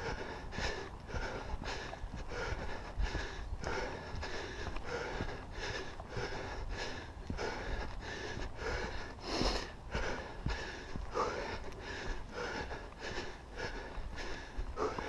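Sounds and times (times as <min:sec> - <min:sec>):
person breathing hard: 0:00.0 - 0:15.0.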